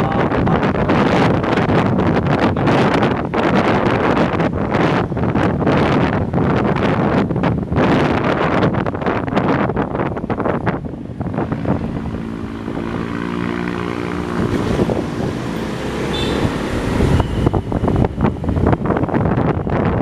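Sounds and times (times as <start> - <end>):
wind buffeting microphone: 0.0 - 20.0
vehicle engine running: 10.4 - 19.6.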